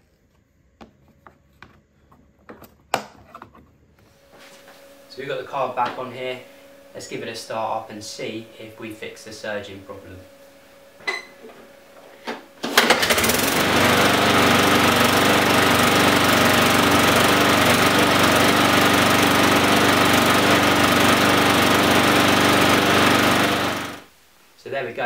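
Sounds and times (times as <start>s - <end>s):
lawnmower engine running: 12.7s - 24.1s.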